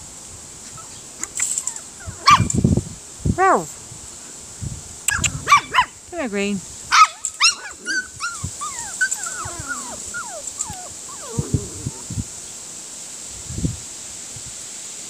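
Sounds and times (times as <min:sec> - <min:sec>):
puppies whimpering and yipping: 0:00.7 - 0:02.5, 0:07.0 - 0:12.2.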